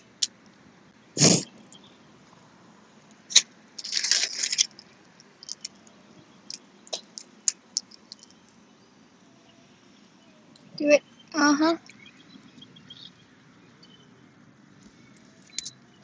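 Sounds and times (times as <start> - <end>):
shells cracking and snapping: 5.4 - 5.8.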